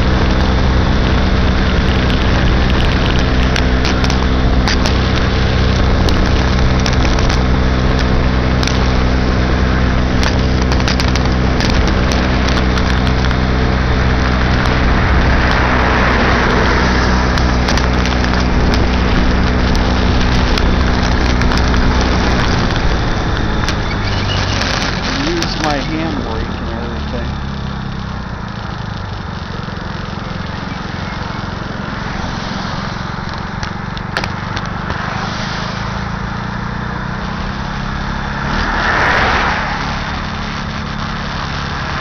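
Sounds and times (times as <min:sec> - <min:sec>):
moped engine running: 0:00.0 - 0:42.0
wind and road noise: 0:00.0 - 0:42.0
crackling clicks: 0:01.7 - 0:08.9, 0:10.2 - 0:13.4, 0:15.4 - 0:35.1.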